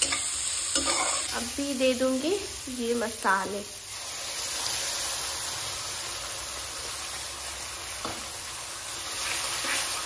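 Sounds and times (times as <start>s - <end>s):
metal spatula stirring: 0.0s - 1.3s
paste sizzling in hot butter: 0.0s - 1.4s.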